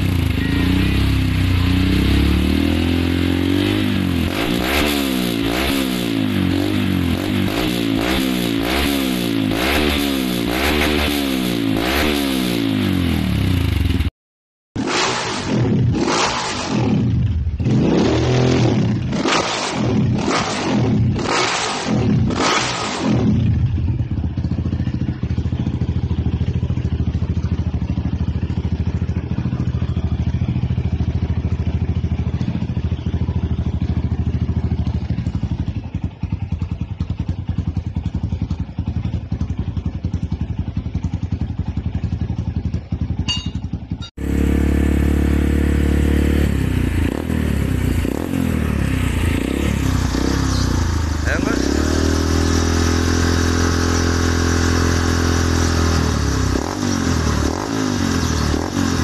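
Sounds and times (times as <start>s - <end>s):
deeper dirt bike engine: 0.0s - 14.1s, 14.8s - 59.0s
dirt bike engine revving and idling: 0.0s - 14.1s, 14.8s - 59.0s.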